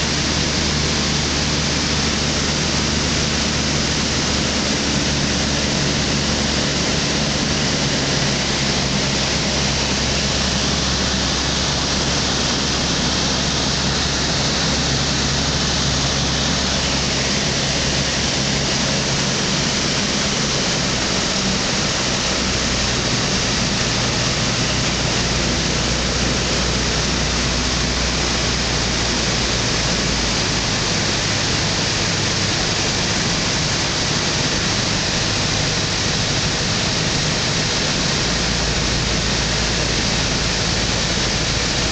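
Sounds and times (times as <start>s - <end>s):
microlight engine running: 0.0s - 41.9s.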